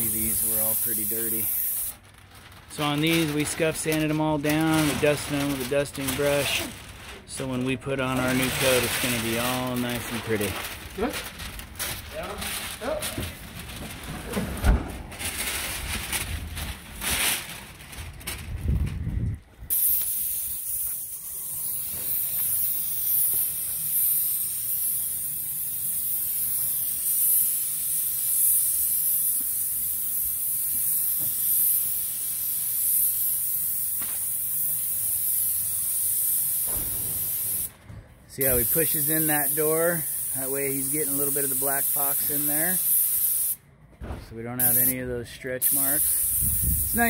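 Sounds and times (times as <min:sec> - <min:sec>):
paint spray gun hissing: 0:00.0 - 0:01.9, 0:19.7 - 0:37.7, 0:38.4 - 0:43.6, 0:44.6 - 0:45.0, 0:45.6 - 0:47.0.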